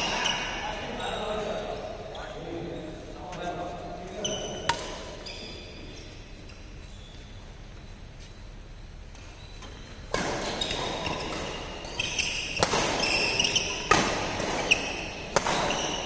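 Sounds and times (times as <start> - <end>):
shoes squeaking on court floor: 0.0 - 16.0
rackets striking shuttlecock: 10.0 - 16.0.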